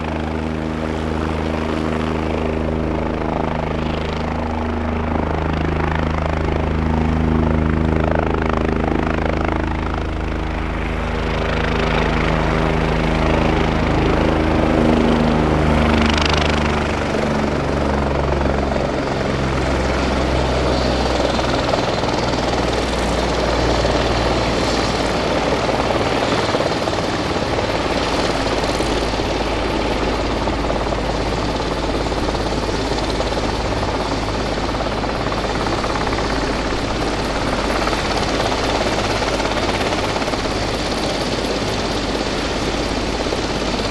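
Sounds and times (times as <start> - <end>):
helicopter rotor and turbine: 0.0 - 43.9.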